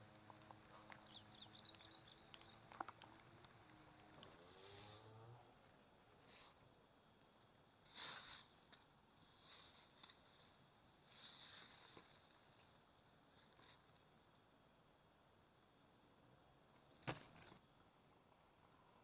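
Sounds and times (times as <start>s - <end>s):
insect chirping: 0.7s - 3.5s, 4.1s - 19.0s
tall grass rustling: 2.8s - 14.2s.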